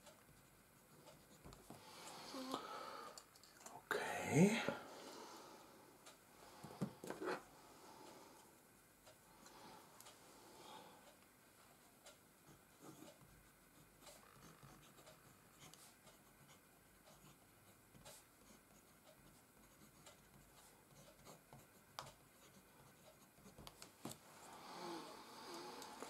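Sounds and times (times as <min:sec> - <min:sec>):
fountain pen scratching on paper: 0:13.8 - 0:23.7.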